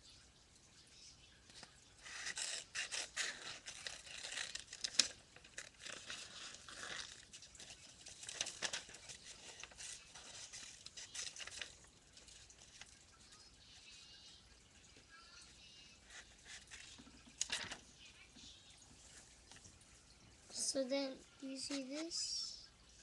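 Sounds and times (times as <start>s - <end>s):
paper rustling and crinkling: 1.5s - 13.4s, 16.0s - 18.3s.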